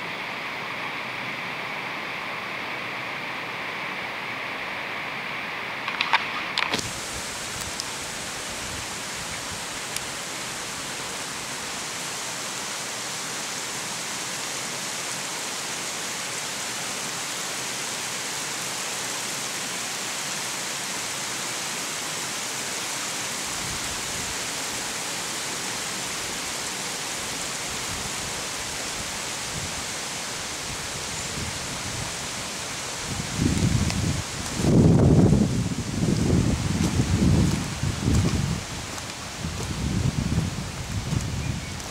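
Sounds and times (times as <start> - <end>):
stream running over stones: 0.0 - 41.9.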